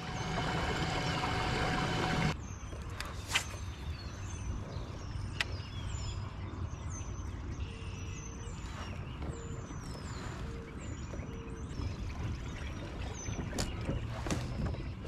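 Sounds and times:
whirring noise: 0:00.0 - 0:02.4
small birds chirping: 0:00.0 - 0:15.0.

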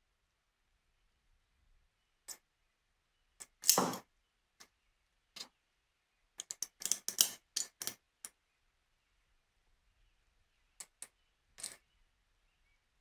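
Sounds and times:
small metal clicks and taps: 0:06.4 - 0:08.4, 0:10.8 - 0:11.8.

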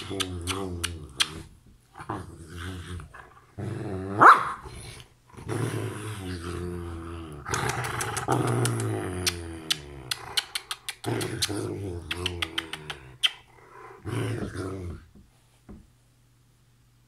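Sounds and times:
kissing smacks: 0:00.0 - 0:01.5, 0:07.5 - 0:13.5
dog grumbling and whining: 0:00.0 - 0:15.1.

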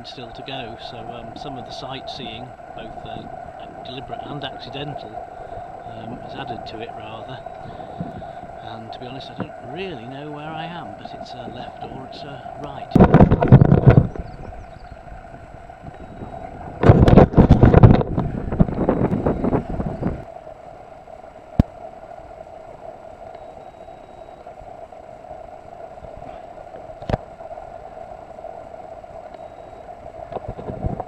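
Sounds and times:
wind buffeting microphone: 0:00.0 - 0:20.3, 0:28.6 - 0:31.0
steady low hum: 0:00.0 - 0:31.0.

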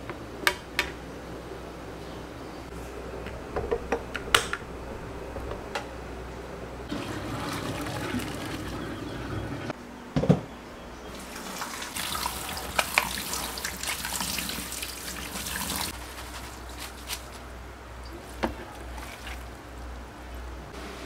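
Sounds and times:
tap water running into sink: 0:06.9 - 0:09.7, 0:11.2 - 0:15.9.

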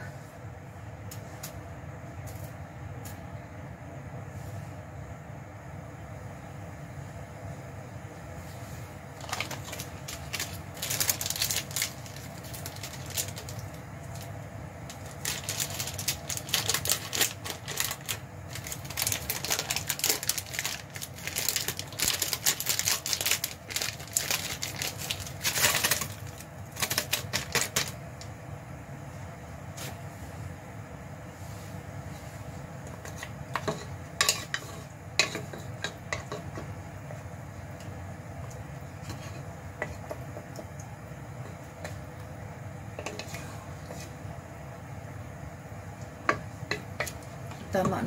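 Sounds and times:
steady low hum: 0:00.0 - 0:48.0
plastic packaging crinkling: 0:09.2 - 0:28.1.

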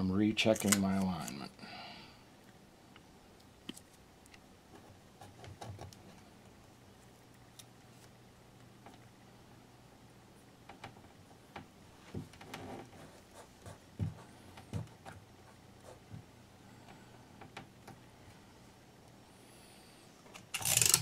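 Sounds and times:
tape rustle: 0:20.4 - 0:21.0.

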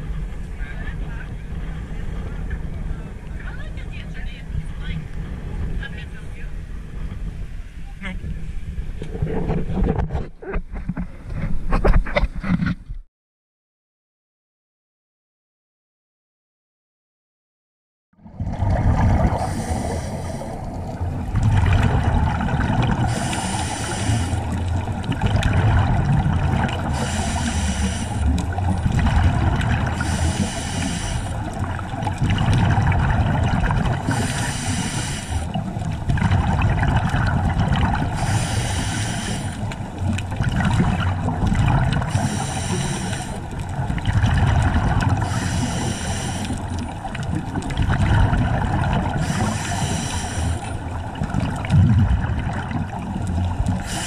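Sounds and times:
low rumble of water: 0:00.0 - 0:13.1, 0:18.2 - 0:54.0
exhaled bubbles underwater: 0:18.2 - 0:54.0.

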